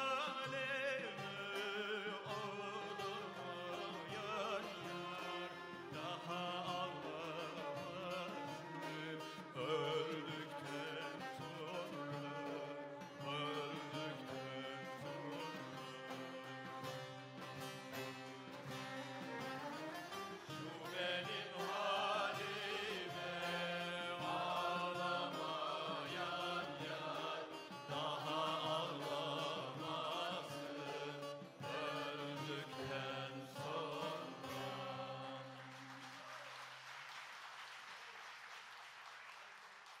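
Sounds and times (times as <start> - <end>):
folk choir singing: 0.0 - 36.1
plucked-string ensemble: 0.0 - 36.2
audience applause: 35.3 - 40.0.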